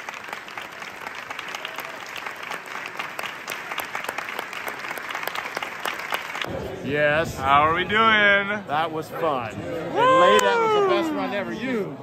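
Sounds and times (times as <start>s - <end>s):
audience applauding: 0.0s - 6.5s, 10.0s - 11.2s.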